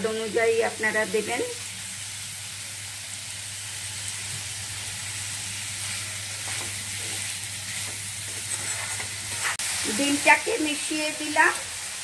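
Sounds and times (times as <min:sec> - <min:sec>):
vegetables sizzling in oil: 0:00.0 - 0:12.0
metal spatula scraping a wok: 0:08.3 - 0:09.6.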